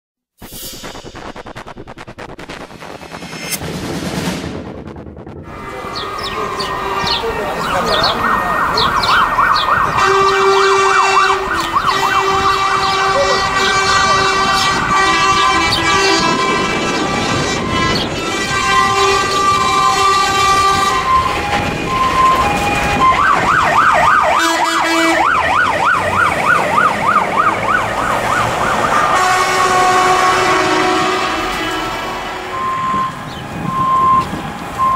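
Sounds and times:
fire engine sirens: 5.5 - 34.9.

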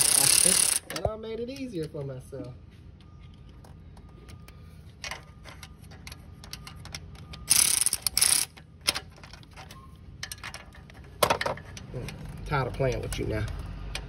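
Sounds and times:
rapid ratchet clicking: 0.0 - 1.0, 7.5 - 8.6
hand tools clicking on metal: 0.0 - 2.0.

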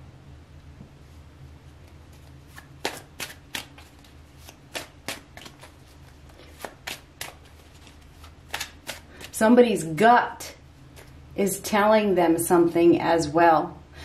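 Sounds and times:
cards being shuffled: 1.7 - 9.4.

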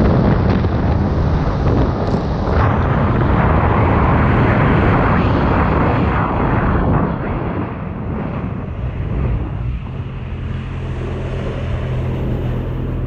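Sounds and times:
jet ski engine running hard: 0.0 - 5.5, 8.6 - 13.0
wind: 0.0 - 13.0.

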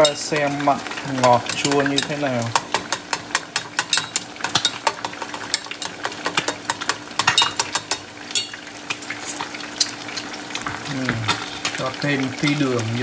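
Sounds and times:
utensil clinking in a saucepan: 0.0 - 8.6
fish frying in oil: 0.0 - 13.0.

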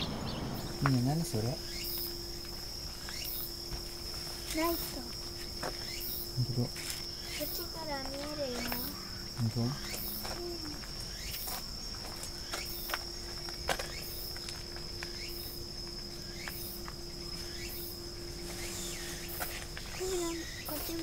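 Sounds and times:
low hum: 0.0 - 4.3
insects chirping: 0.0 - 21.0.

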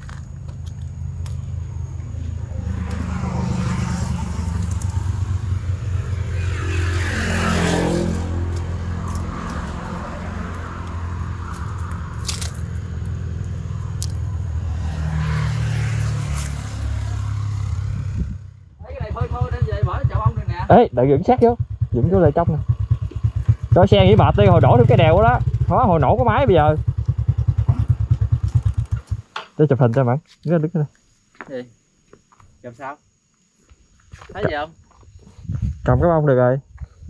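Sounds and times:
motorcycle riding at speed: 0.0 - 29.3.

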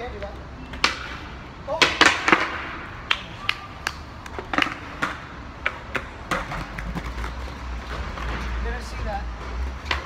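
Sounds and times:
skateboard clattering on bricks: 0.8 - 3.3, 4.4 - 7.4.

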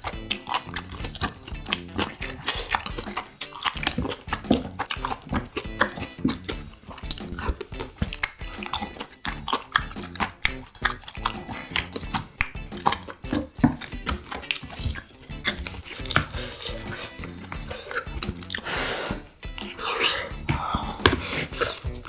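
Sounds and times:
quiet music: 0.0 - 22.0
utensils scraping bowls: 0.0 - 22.0
wet chewing: 0.0 - 22.0.

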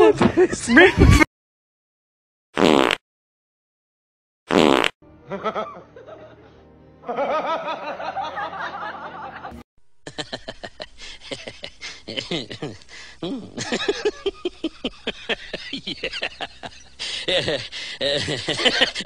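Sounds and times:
fart sound: 2.6 - 3.0, 4.5 - 5.0.

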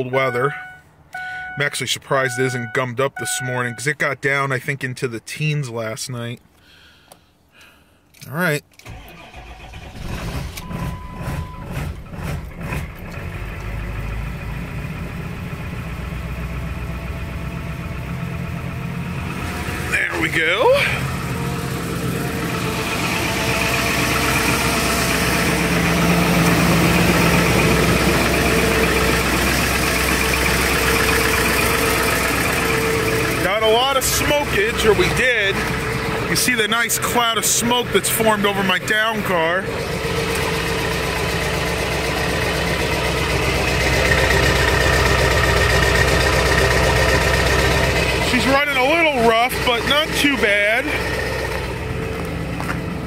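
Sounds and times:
diesel engine idling rough: 10.9 - 53.0.

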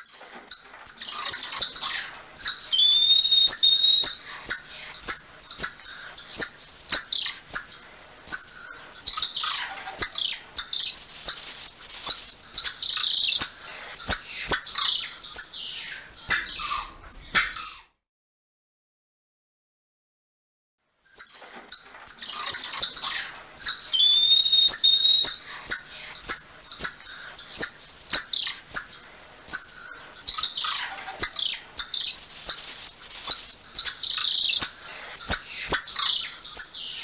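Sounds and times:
long steady whistles: 11.0 - 12.4.

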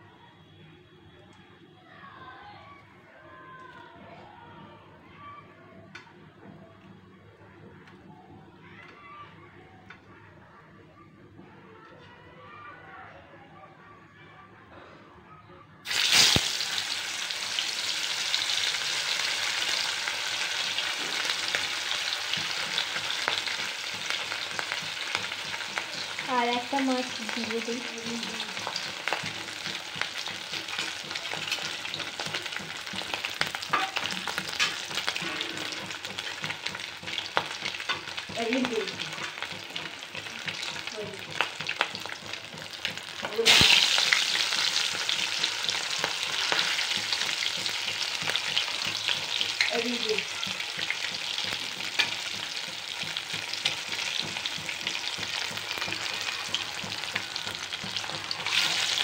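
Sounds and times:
fish sizzling in hot oil: 15.8 - 59.0.

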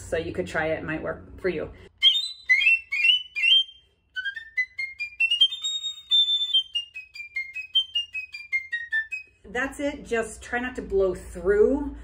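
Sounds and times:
piccolo playing fast passage: 2.0 - 9.3.

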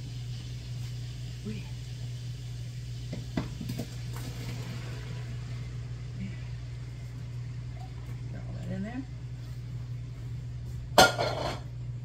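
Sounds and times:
vegetables sizzling in oil: 0.0 - 8.0.

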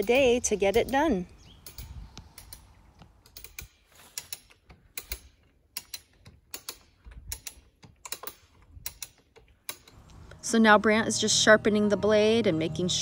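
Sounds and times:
footsteps crackling on twigs: 3.8 - 4.3.

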